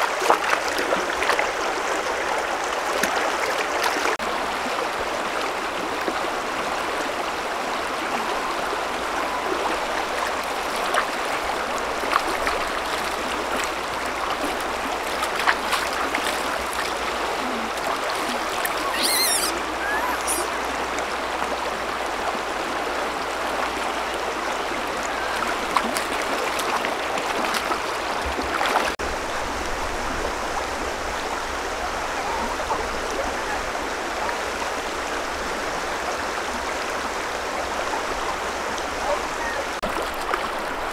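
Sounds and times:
river flowing over stones: 0:00.0 - 0:40.9
high-pitched chirps: 0:18.8 - 0:20.5.

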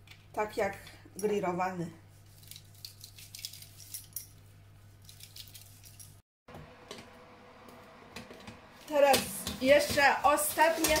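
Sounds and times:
foil trays clicking and clinking: 0:09.4 - 0:11.0.

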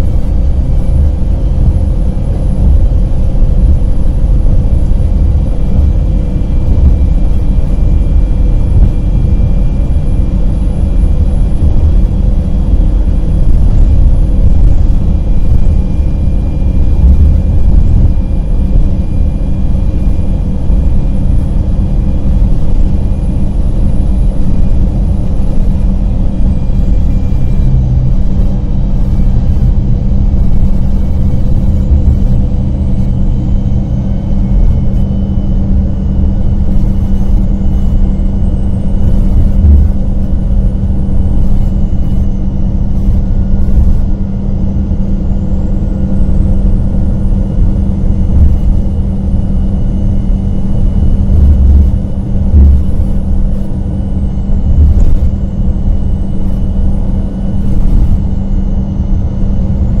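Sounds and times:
bus engine drone: 0:00.0 - 1:00.0
faint high whine: 0:00.0 - 1:00.0.

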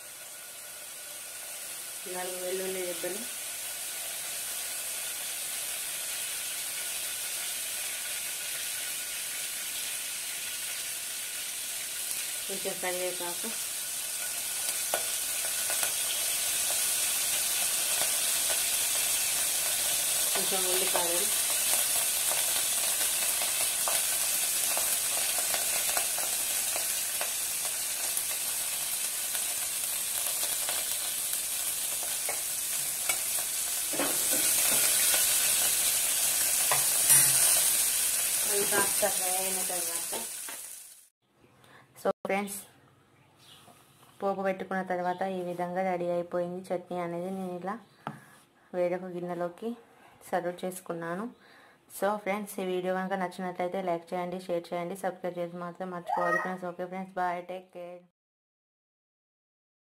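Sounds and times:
spices sizzling in hot oil: 0:00.0 - 0:41.1.

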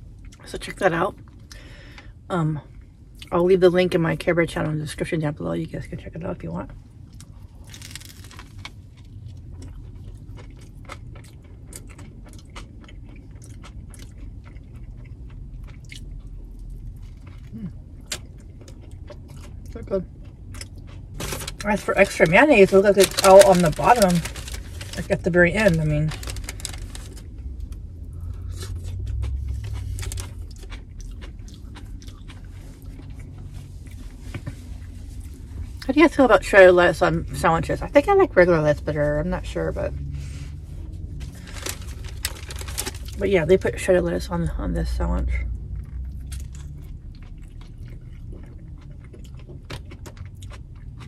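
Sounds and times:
low steady hum: 0:00.0 - 0:51.0
low steady rumble: 0:00.0 - 0:51.0
wet chewing sounds: 0:07.1 - 0:35.9, 0:45.5 - 0:51.0.

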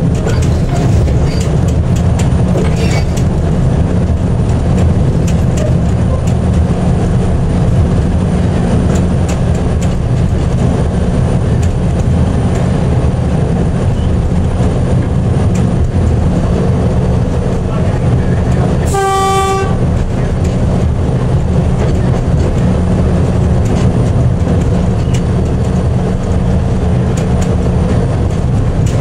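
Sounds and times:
locomotive engine drone: 0:00.0 - 0:29.0.

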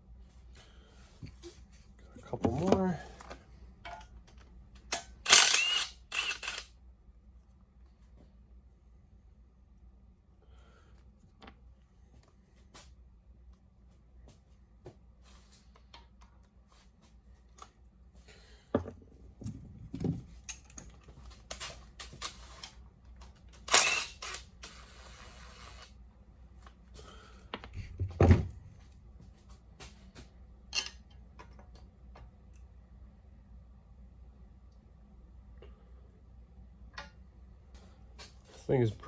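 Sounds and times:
cordless drill spinning bolt: 0:05.2 - 0:06.7, 0:23.6 - 0:25.9.

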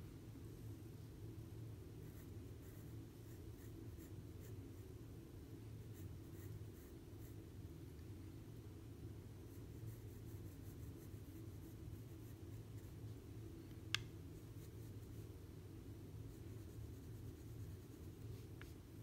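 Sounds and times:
steady low hum: 0:00.0 - 0:19.0
pencil scratching on paper: 0:09.4 - 0:13.0, 0:14.4 - 0:15.3, 0:16.2 - 0:18.8.

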